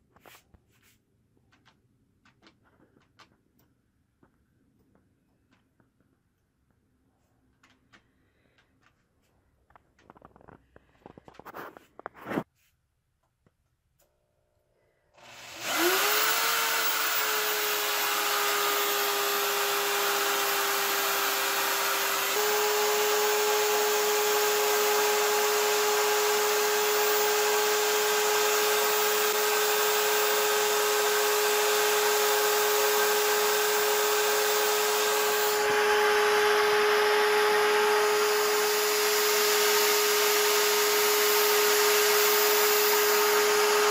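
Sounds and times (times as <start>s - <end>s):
electric drill whine: 15.2s - 43.9s.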